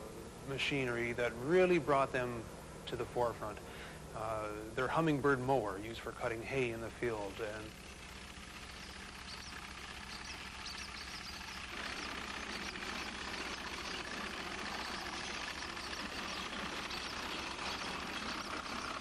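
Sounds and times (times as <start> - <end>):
hay mower clattering: 6.2 - 19.0.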